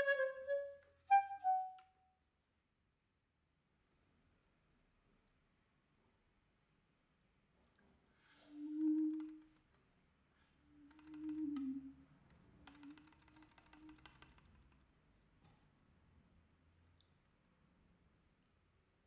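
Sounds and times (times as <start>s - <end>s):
light clicks and rattles: 10.9s - 15.7s.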